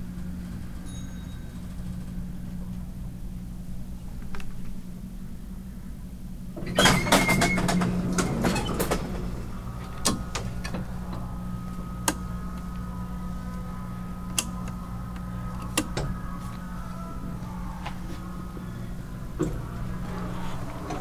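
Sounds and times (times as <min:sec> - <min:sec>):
low machine hum: 0:00.0 - 0:21.0
steady whining tone: 0:07.6 - 0:21.0.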